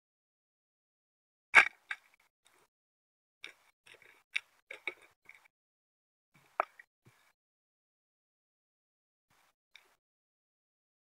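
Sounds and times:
sharp underwater clicks: 3.4s - 5.5s.

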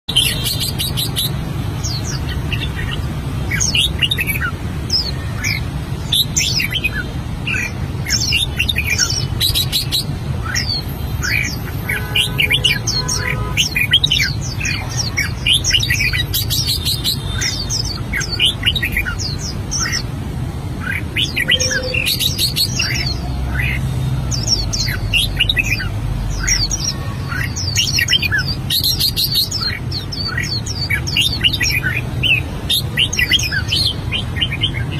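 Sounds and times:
bird singing chirps and whistles: 20.8s - 34.9s.

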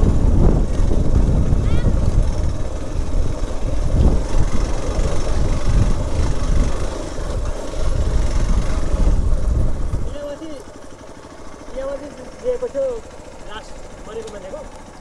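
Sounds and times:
wind rumbling on microphone: 0.0s - 10.4s
motorcycle engine running: 0.0s - 15.0s.

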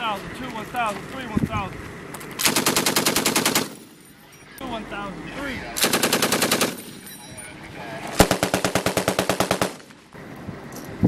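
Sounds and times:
machine gun bursts: 2.4s - 3.9s, 5.8s - 6.9s, 8.2s - 9.9s.

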